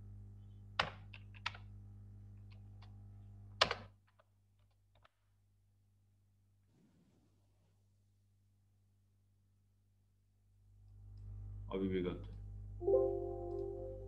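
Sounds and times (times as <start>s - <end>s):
low steady hum: 9.9s - 14.0s.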